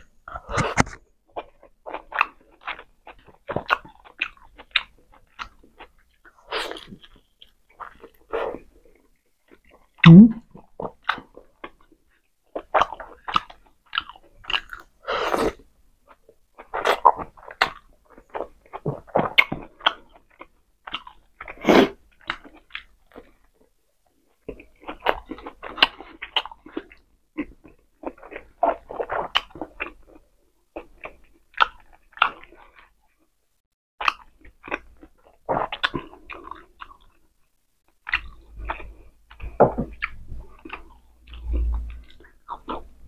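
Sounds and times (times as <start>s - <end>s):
person chewing and lip-smacking: 0.3s - 11.9s, 12.5s - 14.9s, 16.1s - 23.5s, 24.4s - 32.9s, 34.0s - 37.2s, 38.0s - 43.0s.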